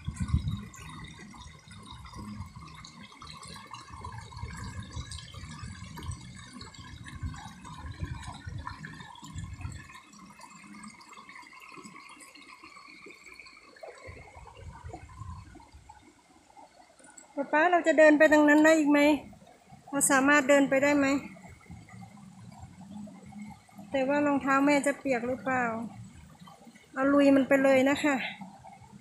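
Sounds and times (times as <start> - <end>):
wind rumbling on microphone: 0.0 - 10.0, 13.8 - 16.0
stream babbling over rocks: 0.0 - 29.0.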